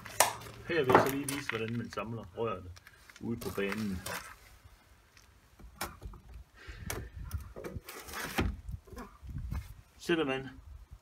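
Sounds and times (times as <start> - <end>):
plastic pipe scraping slide: 7.4 - 8.6.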